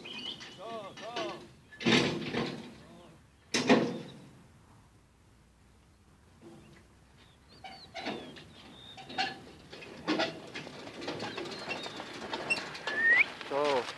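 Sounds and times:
birds chirping: 0.0s - 1.9s, 5.8s - 9.9s, 10.8s - 13.8s
clattering knocks: 0.4s - 2.8s.

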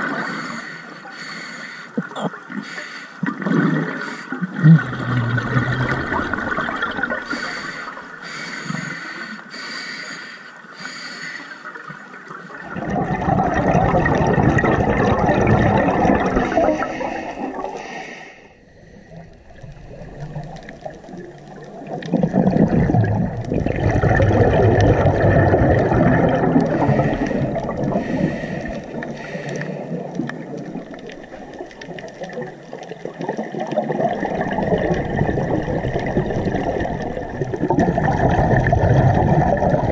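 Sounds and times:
bubbling exhalations underwater: 3.2s - 7.5s, 12.5s - 17.8s, 19.4s - 39.9s.

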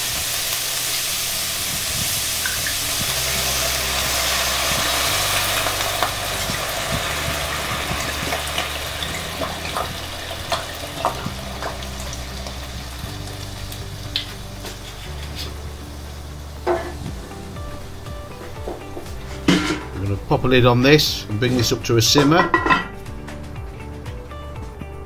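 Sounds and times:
vegetables sizzling in a pot: 0.0s - 23.0s
wine pouring: 1.1s - 20.8s.

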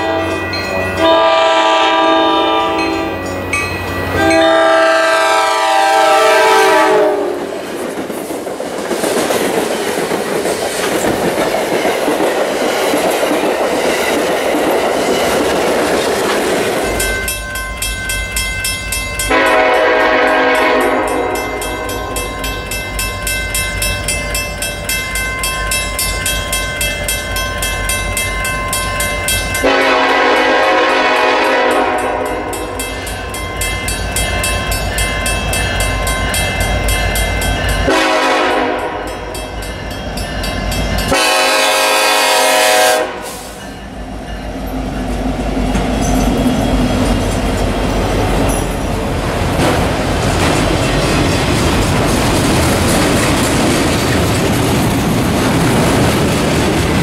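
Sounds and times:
locomotive air horn blasts: 0.0s - 0.4s, 1.0s - 3.4s, 4.1s - 7.5s, 19.3s - 22.1s, 29.6s - 32.8s, 37.9s - 39.2s, 41.1s - 43.6s
train air horn: 0.0s - 3.4s, 4.1s - 7.5s, 19.3s - 22.1s, 29.6s - 32.8s, 37.9s - 39.2s, 41.1s - 43.7s
train wheel and rail noise: 0.0s - 57.0s.

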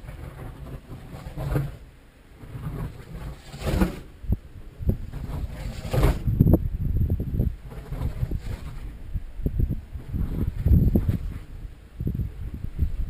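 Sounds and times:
glider rushing past: 0.0s - 6.6s
low wind rumble: 0.0s - 13.0s
wind thumps on microphone: 0.0s - 13.0s.

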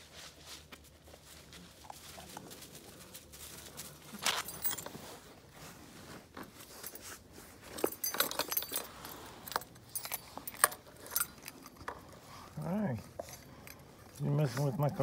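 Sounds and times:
car keys jangling: 4.2s - 5.0s, 7.8s - 11.9s.

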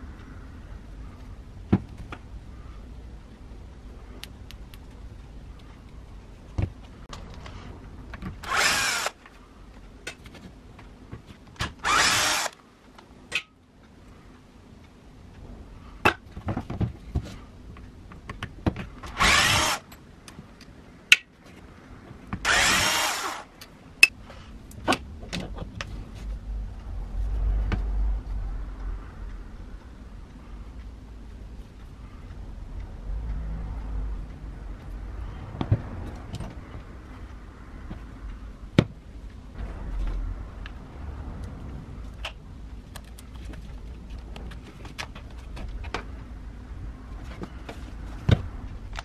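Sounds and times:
cordless screwdriver spinning: 11.8s - 12.6s.

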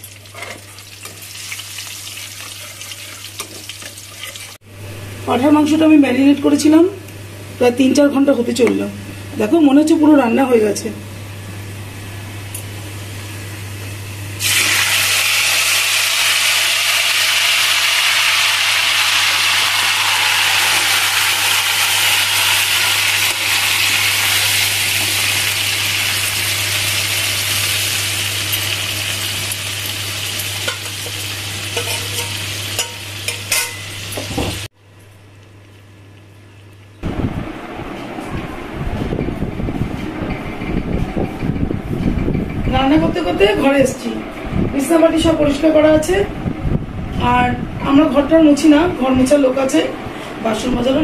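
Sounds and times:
meat sizzling in hot oil: 0.0s - 4.6s, 14.4s - 34.7s
metal spatula scraping a pan: 31.7s - 33.8s.

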